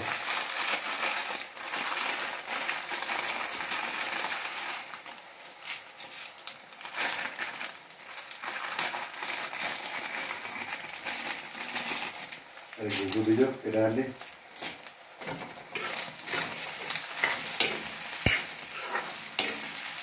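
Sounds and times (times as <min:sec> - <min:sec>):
plastic packet crinkling: 0:00.0 - 0:20.0.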